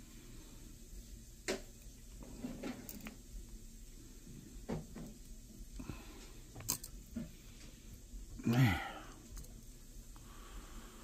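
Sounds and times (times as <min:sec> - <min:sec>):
pliers clicking and scraping: 0:06.6 - 0:07.0.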